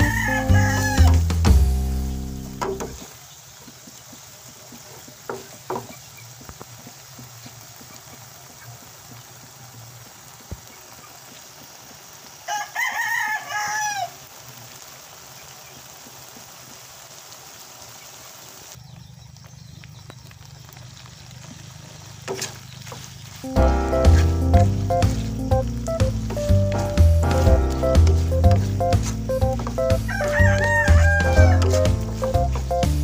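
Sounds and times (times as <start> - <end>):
rooster crowing: 0.0 - 1.3, 12.4 - 14.2, 29.8 - 32.3
shrimp simmering in a wok: 1.3 - 33.0.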